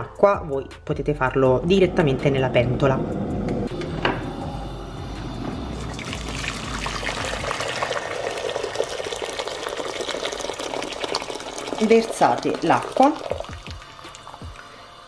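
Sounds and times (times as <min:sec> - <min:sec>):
water pouring into metal pot: 0:05.7 - 0:14.7.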